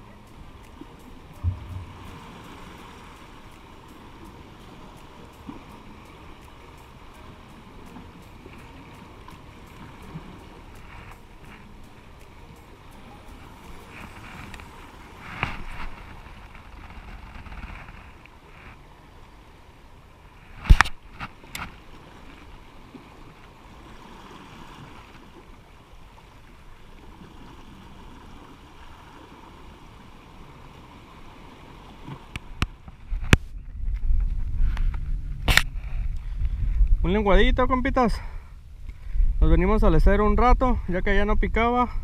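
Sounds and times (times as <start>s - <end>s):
sea water sloshing and lapping: 0.0s - 37.0s
sharp knocks: 1.4s - 2.2s.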